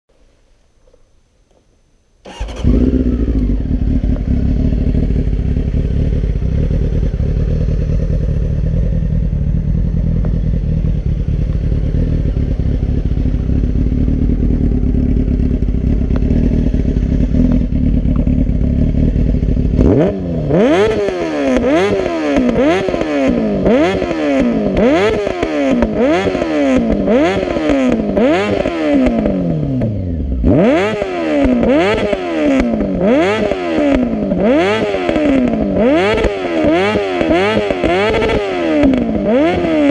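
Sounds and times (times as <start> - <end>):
motorcycle engine idling and revving: 2.2 - 39.9
exhaust backfire pops: 9.9 - 11.9, 15.2 - 20.1, 30.9 - 39.9.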